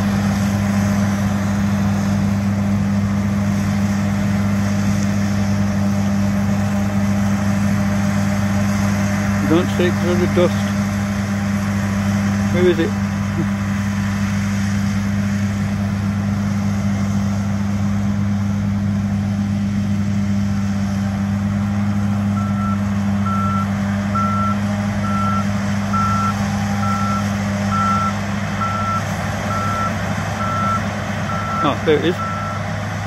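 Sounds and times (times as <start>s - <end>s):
combine harvester droning: 0.0s - 33.0s
reversing alarm beeping: 22.2s - 32.7s.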